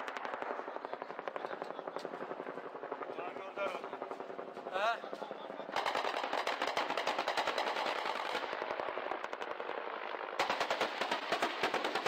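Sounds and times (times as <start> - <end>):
automatic gunfire: 5.7 - 8.8, 10.4 - 12.0.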